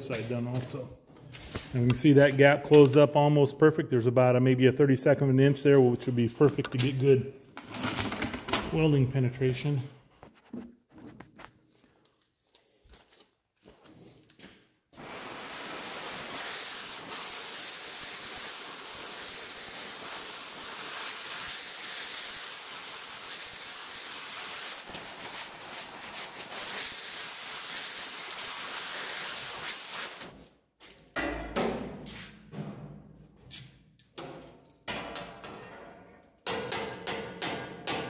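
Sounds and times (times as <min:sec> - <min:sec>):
cutting torch flame hissing: 0:14.9 - 0:30.3.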